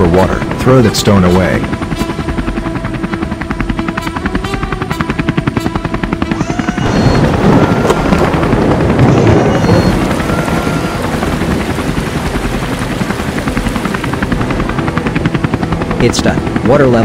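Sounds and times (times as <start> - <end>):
cartoon helicopter rotor chop: 0.4 - 14.8
rush of water: 9.4 - 14.4.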